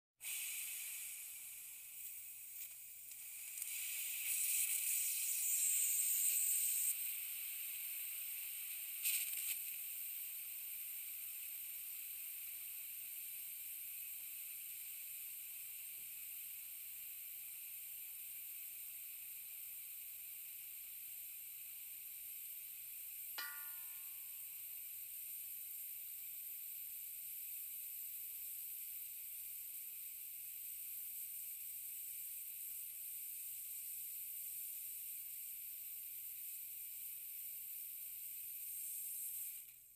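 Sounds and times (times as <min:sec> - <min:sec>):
compressed air hissing: 0:00.2 - 0:16.8, 0:36.3 - 0:39.9.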